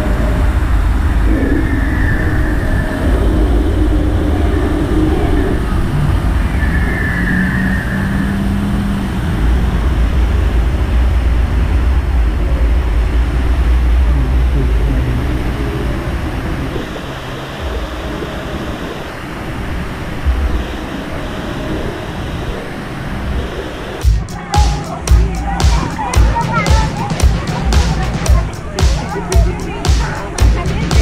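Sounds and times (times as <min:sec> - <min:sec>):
low rumble: 0:00.0 - 0:06.6, 0:09.1 - 0:16.8.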